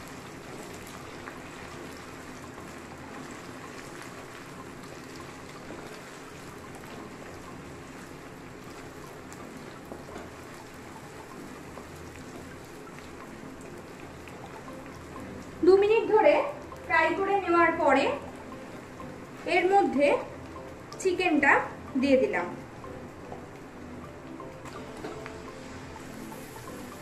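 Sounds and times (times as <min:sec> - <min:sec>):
faint oil crackles: 0:00.0 - 0:21.8
paste and onions sizzling in oil: 0:22.9 - 0:27.0.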